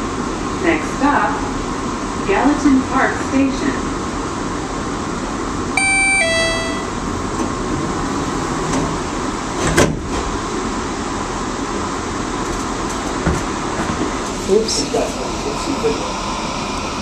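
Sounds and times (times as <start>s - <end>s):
two-note falling chime: 5.8s - 7.0s
ventilation hum: 10.3s - 17.0s.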